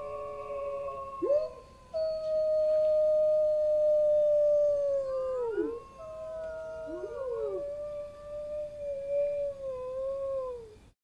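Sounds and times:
wolves howling: 0.0s - 10.8s.

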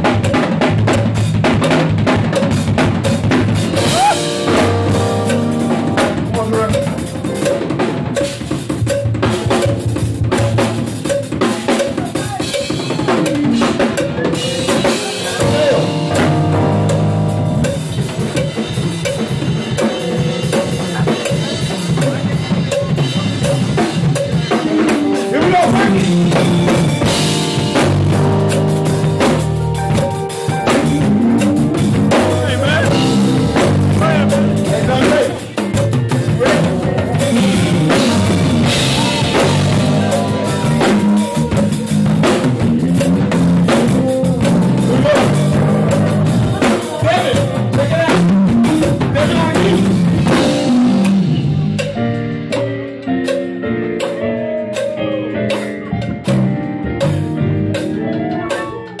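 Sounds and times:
bass notes: 0.0s - 58.5s
drum kit played fast: 0.0s - 59.0s
keyboard chords: 0.0s - 59.0s.

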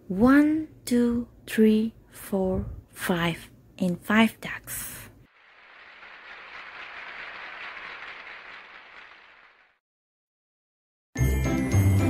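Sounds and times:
crowd clapping: 5.3s - 9.8s.

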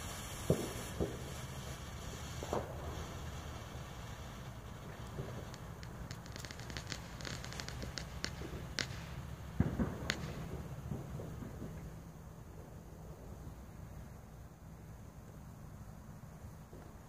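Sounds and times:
smoke flare crackling: 0.0s - 14.2s.

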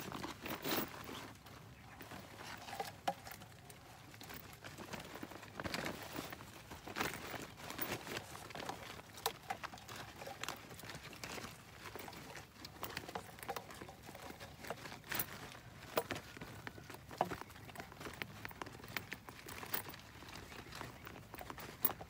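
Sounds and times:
netting taps and rustling: 0.0s - 22.0s.

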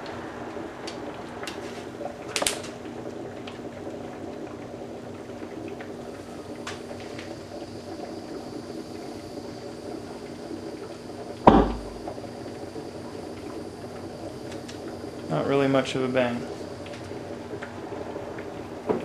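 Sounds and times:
electrolyzer bubbling: 0.0s - 19.0s
gas igniting with a pop: 0.8s - 2.8s, 10.4s - 12.4s.

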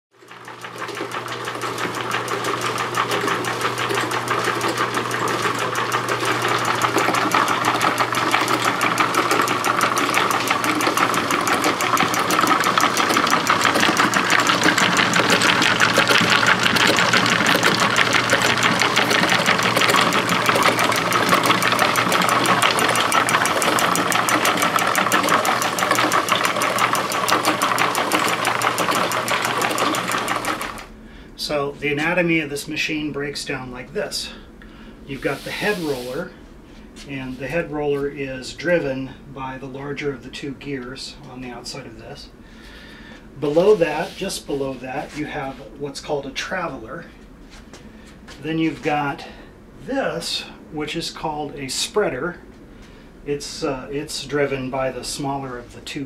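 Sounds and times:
electric motor hum: 0.3s - 31.0s, 35.1s - 36.3s
wooden gears clattering: 0.8s - 30.9s.

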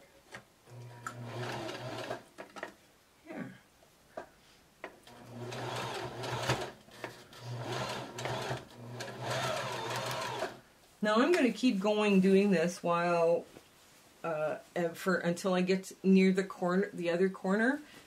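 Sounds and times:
sewing machine stitching: 0.7s - 2.3s, 5.0s - 10.6s.

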